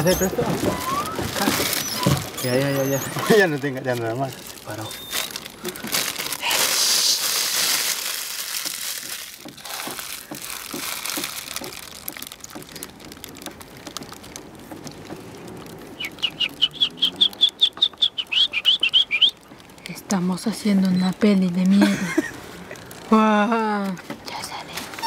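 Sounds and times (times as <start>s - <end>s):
plastic wrapper crinkling: 0.0s - 17.7s, 20.7s - 23.1s
bird chirping rapidly: 16.0s - 19.4s.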